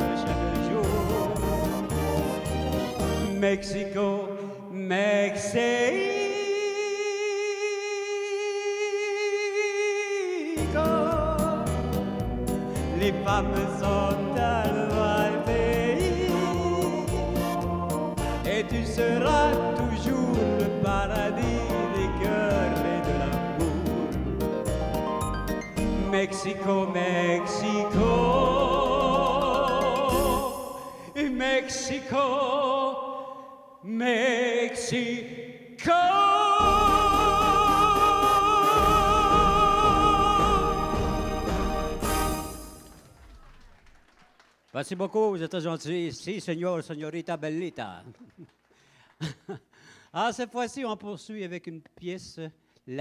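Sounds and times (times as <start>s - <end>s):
man singing long high note: 0.0s - 2.0s, 3.2s - 12.0s, 12.7s - 24.2s, 25.8s - 41.8s
backing music: 0.0s - 3.8s, 10.6s - 31.2s, 36.6s - 43.2s.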